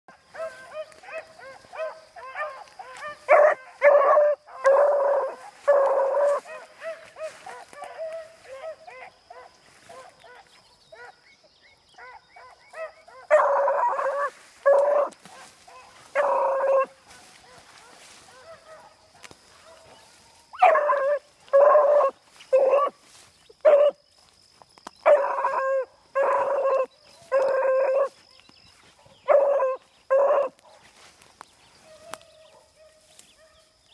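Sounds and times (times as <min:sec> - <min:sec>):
dog yelping: 0:12.0 - 0:18.9, 0:20.6 - 0:22.9.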